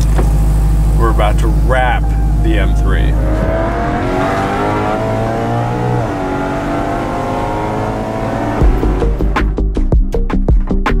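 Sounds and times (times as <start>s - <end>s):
car engine accelerating: 0.0s - 9.8s
electronic music with drum beat: 8.3s - 11.0s.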